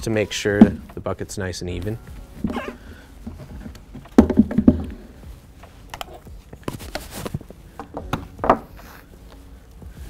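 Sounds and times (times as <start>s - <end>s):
plastic bucket knocking on table: 4.2s - 5.0s
pump set down with knock: 4.2s - 5.0s.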